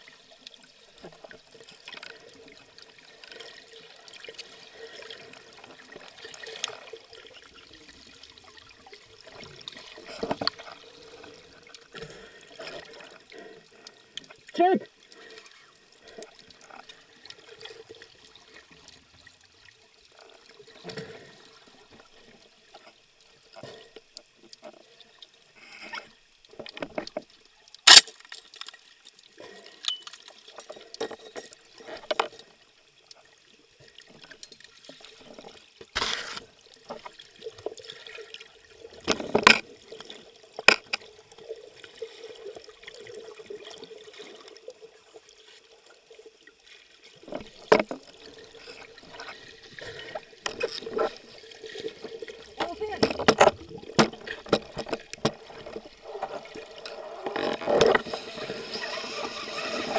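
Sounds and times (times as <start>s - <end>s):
underwater water hum: 0.0s - 59.9s
underwater clicks and knocks: 39.0s - 41.1s, 47.3s - 48.2s, 50.1s - 51.2s, 52.6s - 58.2s.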